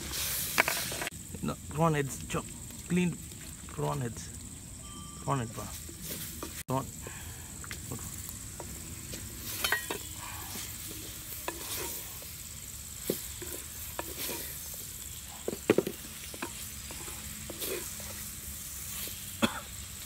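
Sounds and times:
soft sizzle: 0.0s - 20.0s
wooden spoon scraping clay pot: 8.6s - 12.3s, 13.0s - 18.3s.

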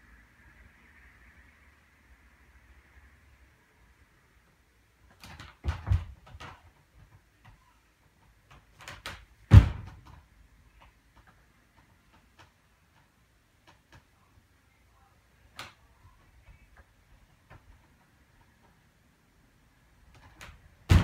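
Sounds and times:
bare feet landing on beam: 9.0s - 10.2s.

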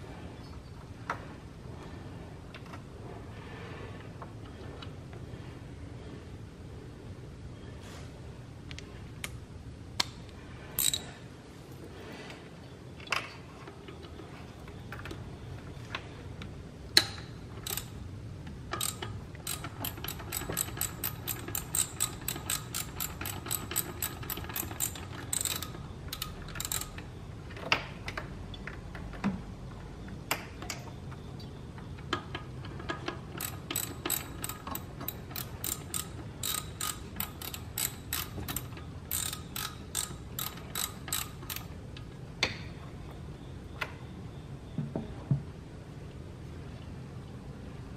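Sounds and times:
ratchet wrench clicking: 10.8s - 11.1s, 17.6s - 18.0s, 18.7s - 27.0s, 33.4s - 41.7s.

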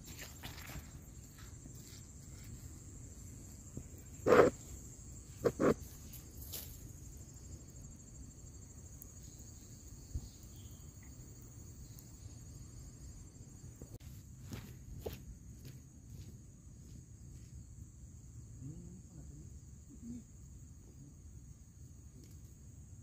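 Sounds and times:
high-pitched insect chorus: 0.0s - 23.0s.

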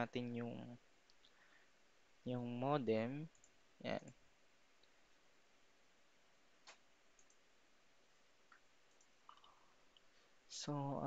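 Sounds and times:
faint computer mouse clicks: 6.6s - 7.4s, 8.5s - 10.1s.

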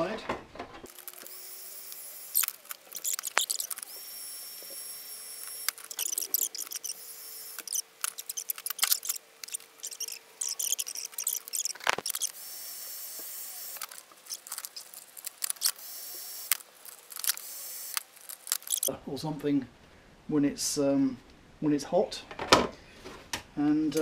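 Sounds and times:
heat gun hissing: 0.9s - 18.9s.

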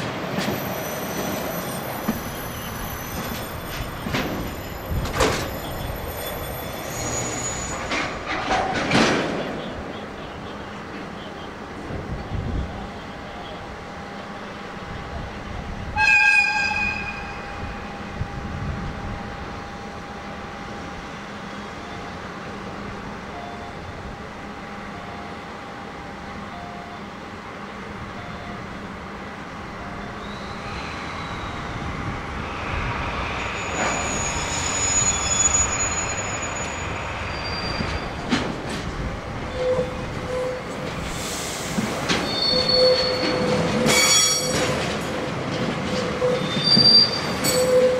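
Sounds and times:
rumble of rail wagons: 0.0s - 47.9s
wheels squealing: 0.4s - 8.4s, 32.5s - 38.3s, 42.1s - 45.0s, 45.9s - 47.9s
locomotive whistle blast: 16.0s - 17.6s, 42.3s - 44.6s.

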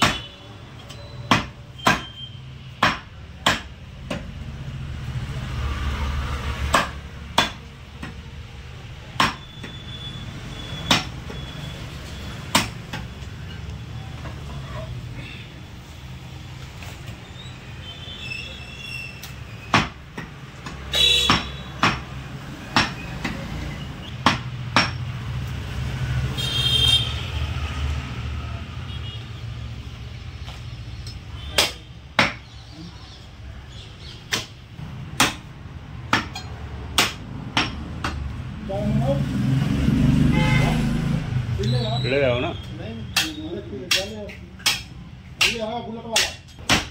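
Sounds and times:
cleaver chopping on wooden block: 1.3s - 2.2s, 2.8s - 4.3s, 6.6s - 8.2s, 9.2s - 9.8s, 10.9s - 11.2s, 12.5s - 13.1s, 19.7s - 23.4s, 24.2s - 25.0s, 31.1s - 32.6s, 34.3s - 34.6s, 35.2s - 35.5s, 36.1s - 38.2s, 43.1s - 46.9s.

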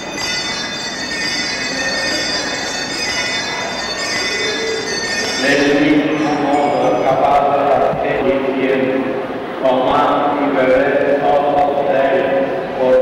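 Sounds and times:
small church bells pealing: 0.0s - 9.1s
voices: 0.0s - 13.0s.

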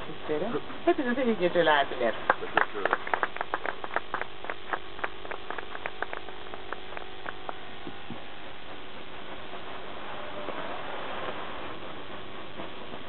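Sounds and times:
steady electrical hum: 0.0s - 13.0s
small audience applause: 2.0s - 8.2s.

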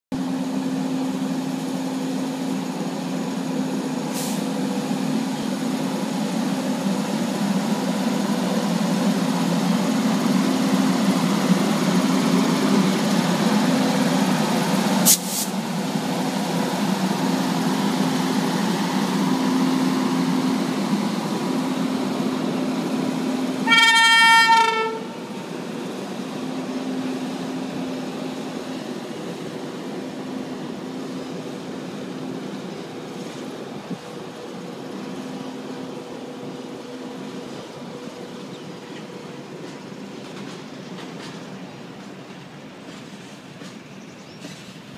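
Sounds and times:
train wheels rumbling on rail: 0.1s - 44.9s
train horn: 23.6s - 25.3s.

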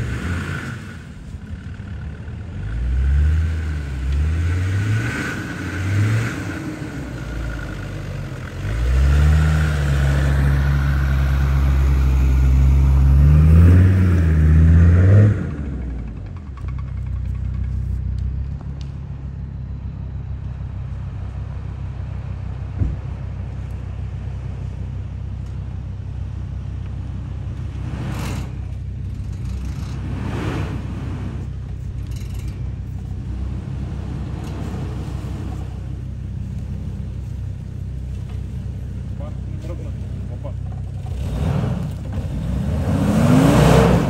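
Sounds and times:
car engine running at low revs: 0.0s - 44.0s.

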